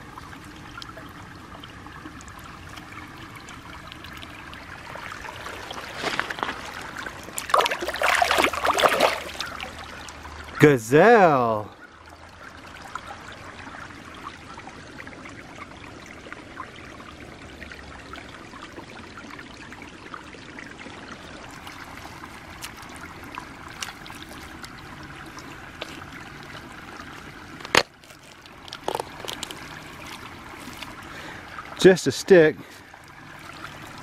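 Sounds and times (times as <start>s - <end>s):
stream trickling over rocks: 0.0s - 34.0s
hand digging in wet mud: 28.1s - 31.0s.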